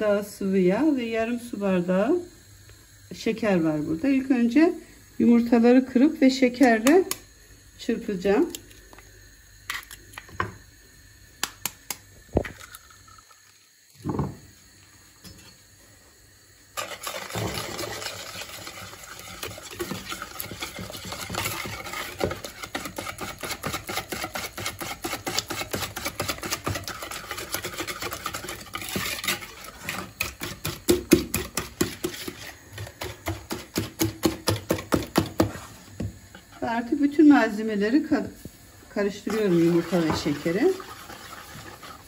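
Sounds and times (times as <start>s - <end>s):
whisk clattering against bowl: 16.8s - 32.4s.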